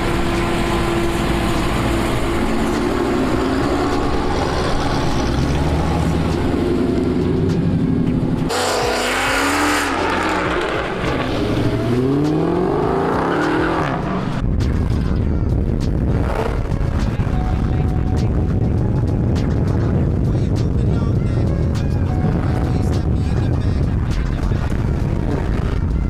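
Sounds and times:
car engine accelerating: 0:00.0 - 0:14.5, 0:16.0 - 0:20.3.

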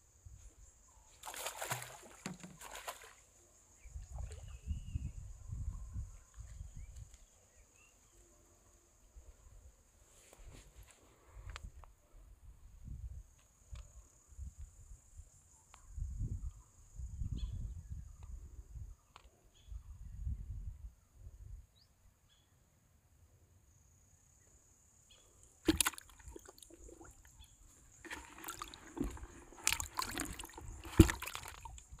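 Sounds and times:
insect trill: 0:00.0 - 0:05.7
fish splashing in bucket: 0:01.2 - 0:03.2, 0:25.6 - 0:32.0.

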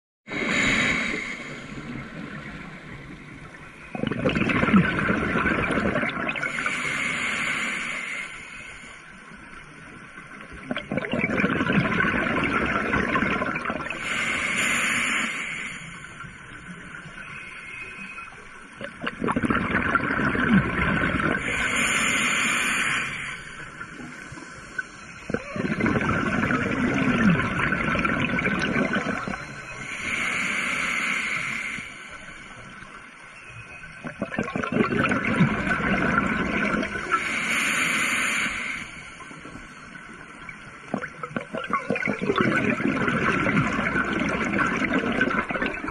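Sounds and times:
diver breathing through regulator: 0:00.3 - 0:02.3, 0:06.4 - 0:09.2, 0:13.9 - 0:16.4, 0:21.2 - 0:27.8, 0:28.6 - 0:32.8, 0:36.8 - 0:39.9.

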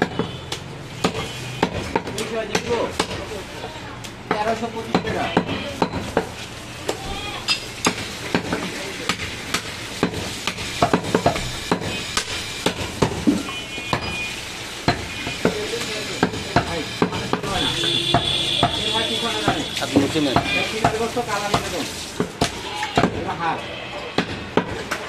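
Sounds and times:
knife chopping on wooden block: 0:00.0 - 0:03.2, 0:07.8 - 0:14.2, 0:16.2 - 0:18.8, 0:19.4 - 0:23.2.

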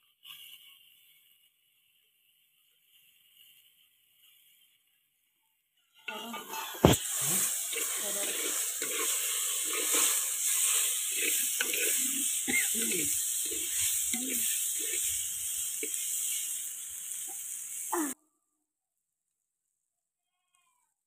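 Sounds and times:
meat sizzling in hot oil: 0:00.0 - 0:05.0, 0:06.3 - 0:18.2
metal ladle scraping a pot: 0:06.1 - 0:16.0.

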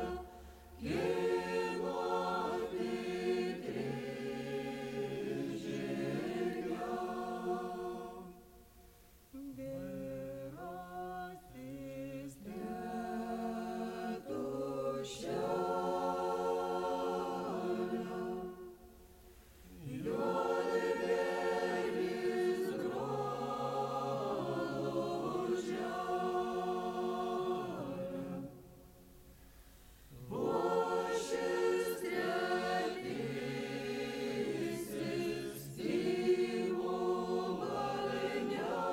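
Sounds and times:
group singing folk song: 0:00.0 - 0:29.2, 0:29.8 - 0:38.9.

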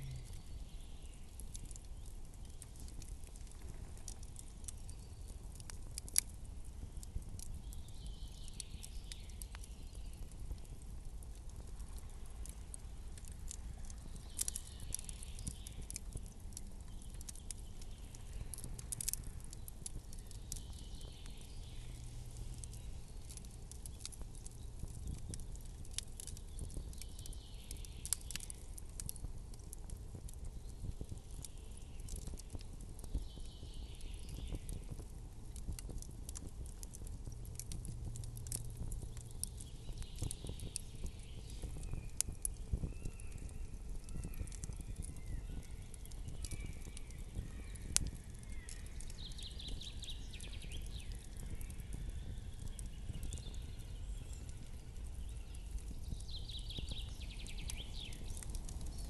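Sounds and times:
low steady rumble: 0:00.0 - 0:00.6
campfire crackling: 0:00.0 - 0:59.0.

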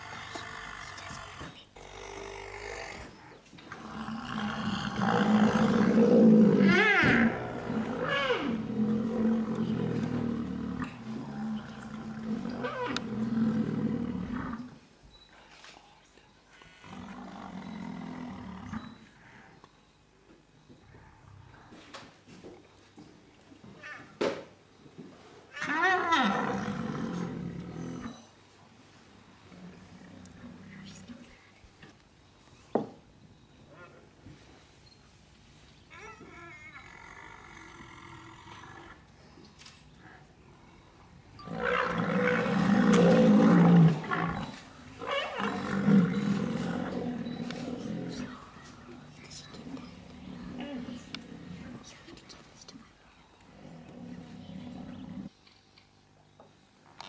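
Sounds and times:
rhinoceros snort: 0:00.0 - 0:14.8, 0:41.4 - 0:48.7
rhinoceros call and growl: 0:00.0 - 0:15.3, 0:16.5 - 0:19.6, 0:25.5 - 0:28.4, 0:35.9 - 0:52.1, 0:53.3 - 0:55.3.

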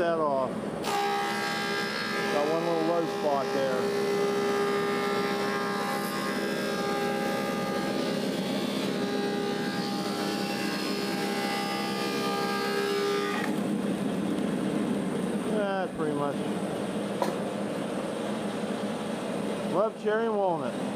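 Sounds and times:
planer machine whine: 0:00.8 - 0:16.6.

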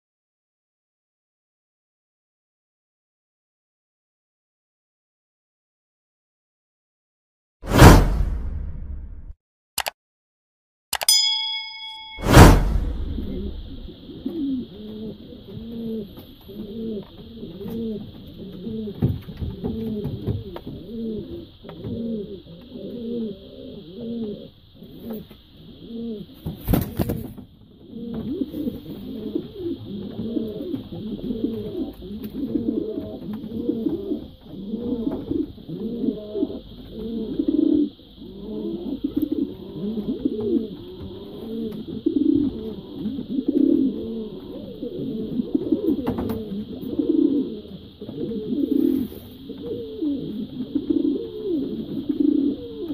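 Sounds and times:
loud burst of noise: 0:07.7 - 0:09.4, 0:12.2 - 0:14.0
pigeons cooing: 0:13.2 - 0:52.9.

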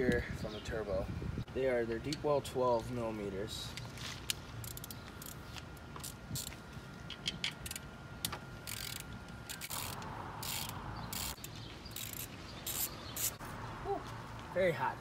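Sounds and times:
socket ratchet clicking: 0:04.6 - 0:05.4, 0:08.6 - 0:13.4.

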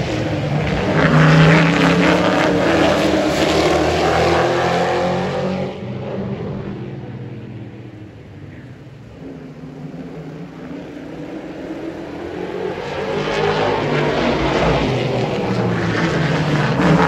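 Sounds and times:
race truck engine passing: 0:00.0 - 0:05.8.

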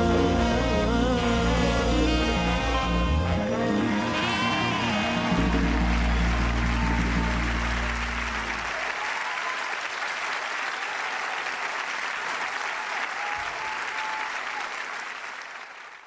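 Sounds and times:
band holding low chord: 0:00.0 - 0:08.8
whoops: 0:00.4 - 0:09.9, 0:12.8 - 0:14.7
audience applauding: 0:01.2 - 0:16.0.

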